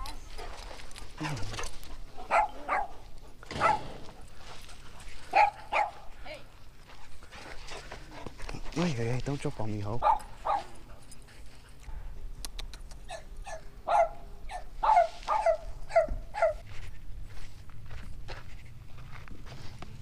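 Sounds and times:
dog barking: 2.1 - 4.0, 5.3 - 6.1, 10.0 - 10.8, 13.1 - 16.6.

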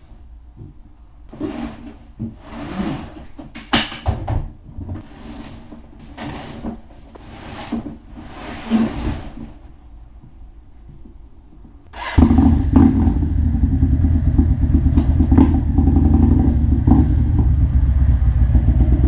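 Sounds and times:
boxes scraping and rustling: 1.3 - 3.6, 4.8 - 9.8.

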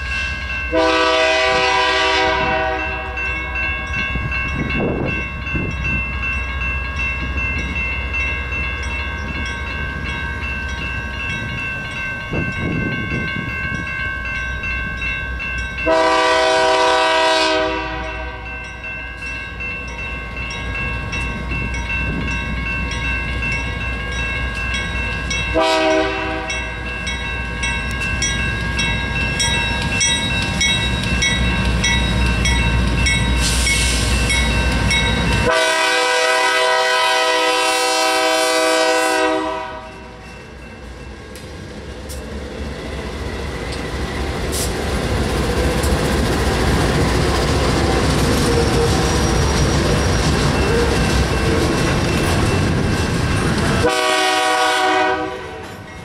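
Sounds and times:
train air horn: 0.7 - 3.2, 15.9 - 18.4, 25.5 - 26.6, 35.4 - 40.1, 53.8 - 55.7
locomotives rumbling past: 39.9 - 54.6.

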